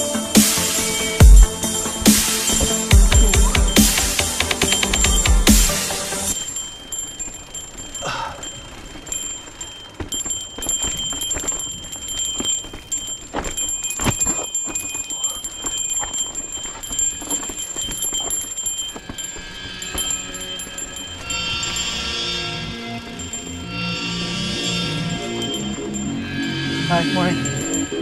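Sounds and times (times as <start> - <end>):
mountain bike rattling on rocks: 6.3 - 22.1.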